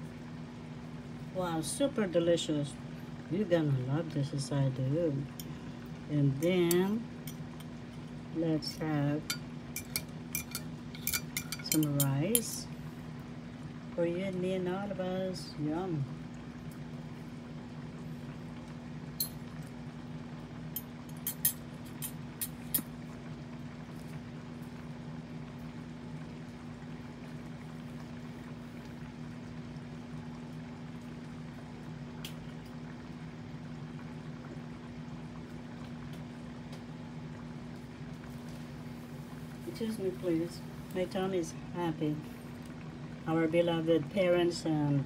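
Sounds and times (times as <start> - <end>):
steady low hum: 0.0 - 45.0
spoon clinking: 9.3 - 12.6.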